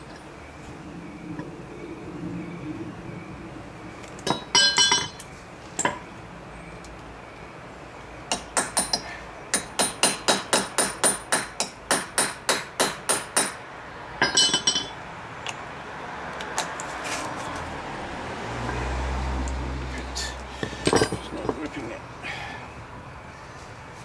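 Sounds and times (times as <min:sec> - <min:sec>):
hammer striking steel punch: 0:08.3 - 0:13.6
metal clinks rattling: 0:20.8 - 0:21.7.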